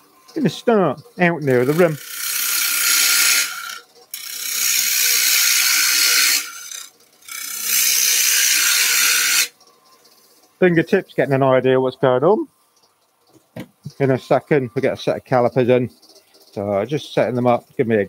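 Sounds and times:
gouge cutting wood on a lathe: 0:01.5 - 0:09.5.

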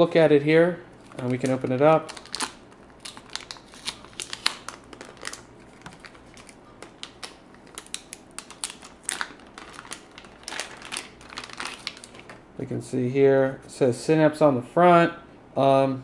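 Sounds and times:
plastic packaging crinkling: 0:01.0 - 0:12.4.

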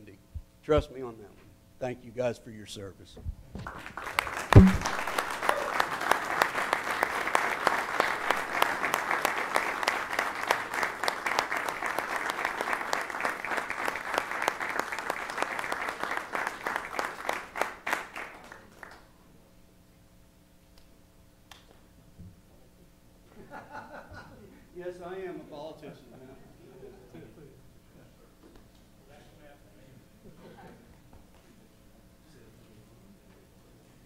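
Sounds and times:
audience applauding: 0:03.6 - 0:19.0.

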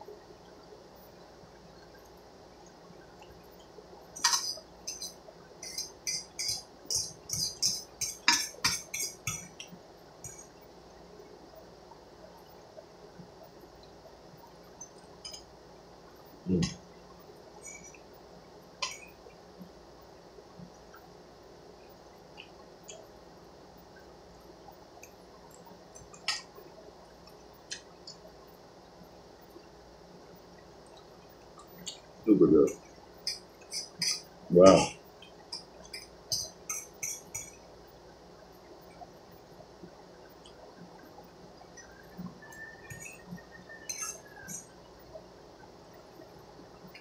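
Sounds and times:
fork clinking against metal pot: 0:04.2 - 0:10.5, 0:33.2 - 0:34.3, 0:36.0 - 0:37.6, 0:43.9 - 0:44.6.

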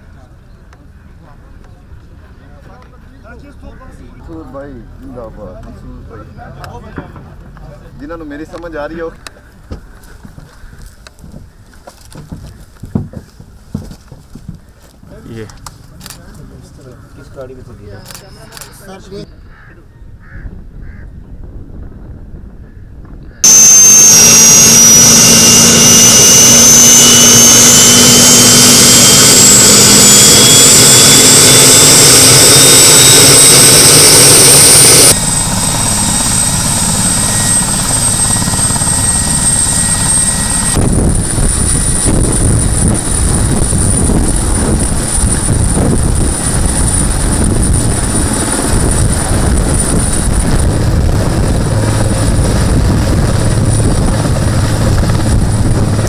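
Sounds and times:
helicopter rotor noise: 0:23.4 - 0:56.0
helicopter turbines whining: 0:23.4 - 0:56.0.

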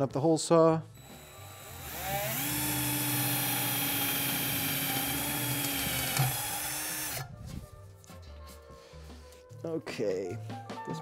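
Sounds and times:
cordless drill drilling sheet metal: 0:01.0 - 0:07.3.

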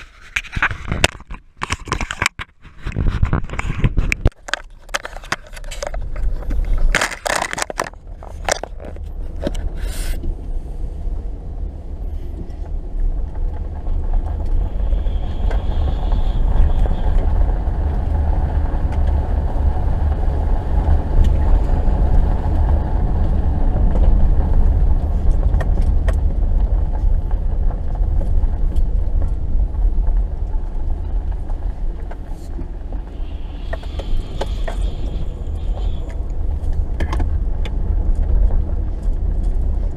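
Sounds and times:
sharp knocks and clatter: 0:00.1 - 0:09.6
car driving over snow: 0:02.8 - 0:39.9.

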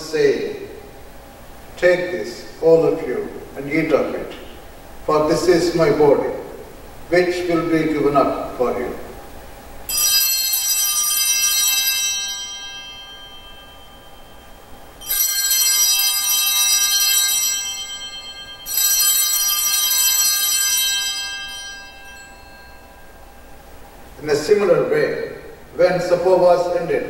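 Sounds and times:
altar bell ringing: 0:09.8 - 0:26.7.

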